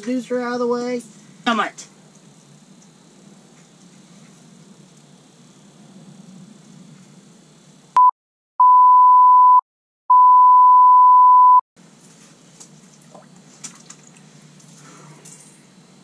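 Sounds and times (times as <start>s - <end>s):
censor bleep tone: 8.0s - 11.6s.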